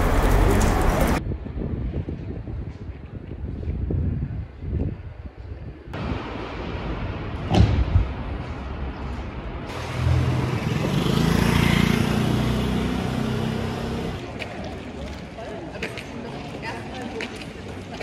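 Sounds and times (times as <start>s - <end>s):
vehicle driving past: 9.7s - 14.2s.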